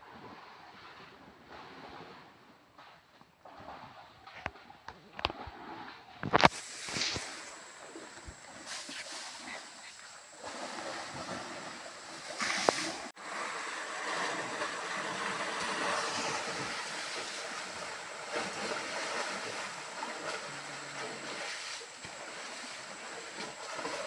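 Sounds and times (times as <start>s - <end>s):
water rushing and splashing: 5.2s - 24.0s.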